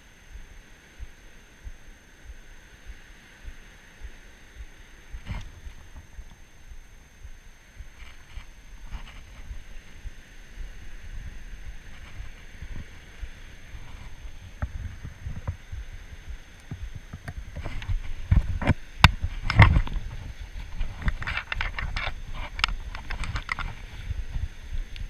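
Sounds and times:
wind rumbling on microphone: 0:00.0 - 0:25.0
handling clicks and scrapes: 0:08.0 - 0:09.6, 0:16.6 - 0:24.1.

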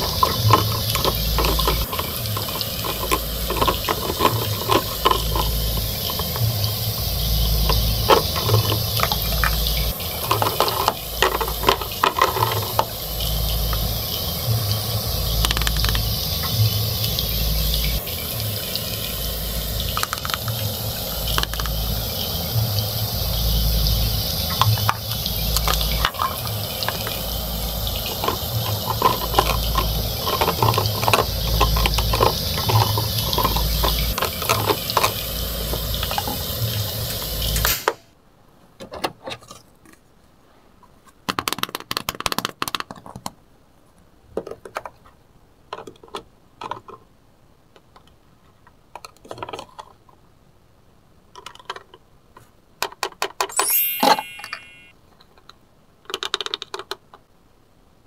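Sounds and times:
fries sizzling in a pan: 0:00.0 - 0:38.0.

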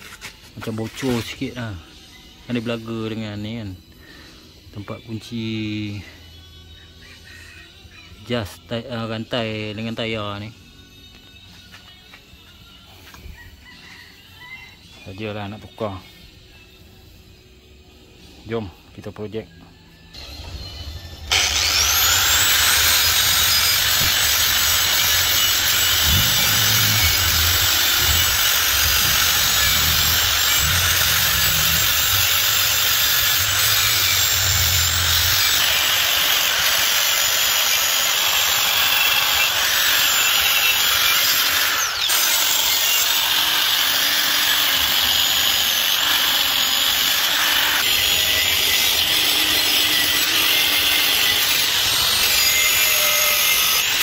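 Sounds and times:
angle grinder wire brushing metal: 0:21.2 - 0:54.0.

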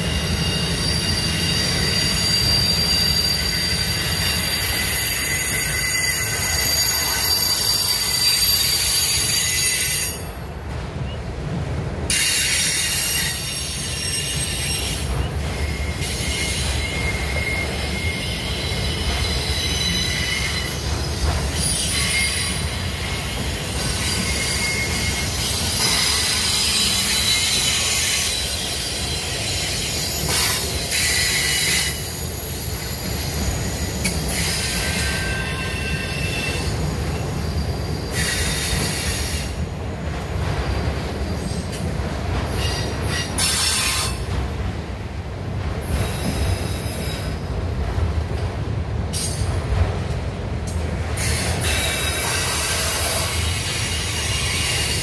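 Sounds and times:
wheels squealing on rails: 0:00.0 - 0:11.2, 0:12.1 - 0:48.0, 0:48.6 - 0:49.8, 0:50.7 - 0:55.0
low rumble of freight cars: 0:00.0 - 0:55.0.

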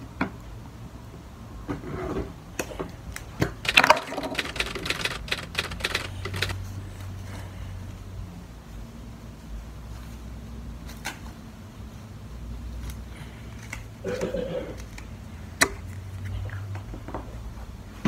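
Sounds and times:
steady low hum: 0:00.0 - 0:10.8
plastic containers clicking and tapping: 0:03.4 - 0:06.6.

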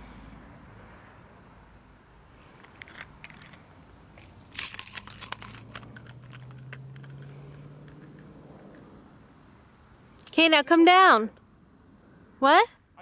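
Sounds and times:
keys jangling: 0:02.6 - 0:03.6, 0:04.5 - 0:08.3.

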